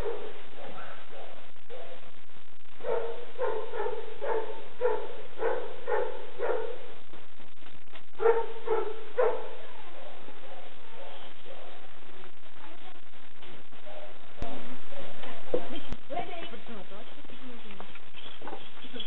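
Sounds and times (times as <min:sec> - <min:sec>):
dog barking: 0:00.0 - 0:02.0, 0:02.8 - 0:06.9, 0:08.2 - 0:11.9.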